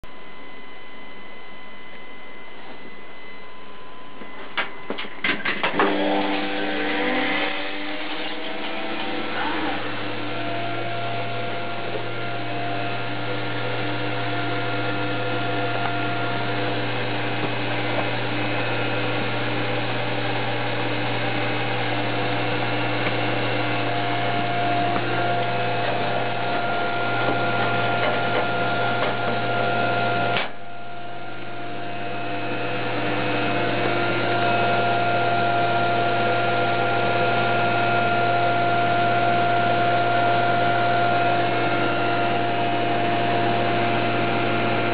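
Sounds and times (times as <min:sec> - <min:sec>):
popcorn machine humming: 0:00.0 - 0:44.9.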